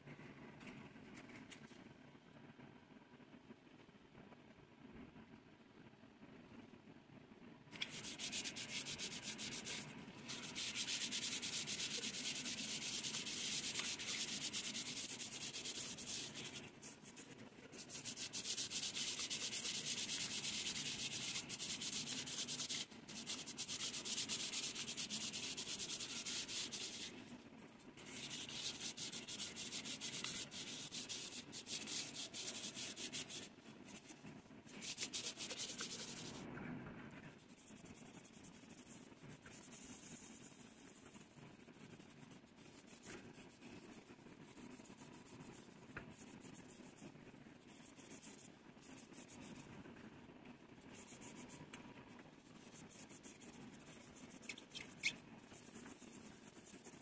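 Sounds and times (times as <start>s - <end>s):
sandpaper rubbing on brass bowl: 7.8s - 27.1s, 28.0s - 34.1s, 34.7s - 36.4s, 52.5s - 57.0s.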